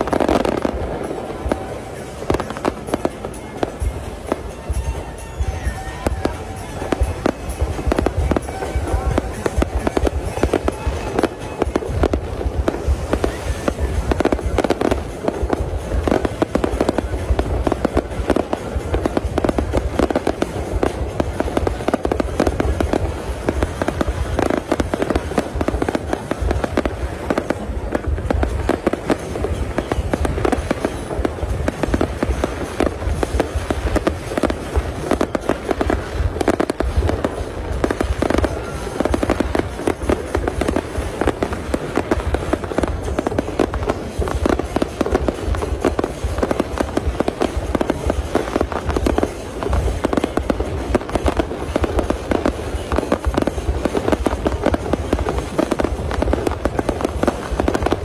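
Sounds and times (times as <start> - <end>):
fireworks bursting: 0.0 - 58.0.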